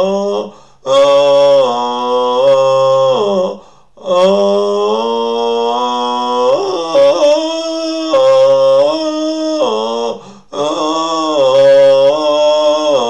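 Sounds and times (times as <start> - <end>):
man chanting held vowels: 0.0 - 13.0
breath: 0.5 - 0.8, 3.6 - 4.0, 10.2 - 10.5.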